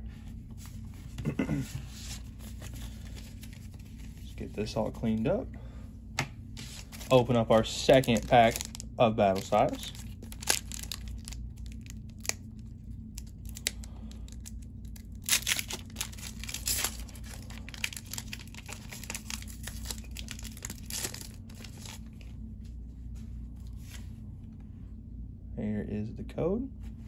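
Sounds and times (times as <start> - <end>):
steady low hum: 0.0 - 27.0
foil wrapper tearing and crinkling: 6.6 - 22.1.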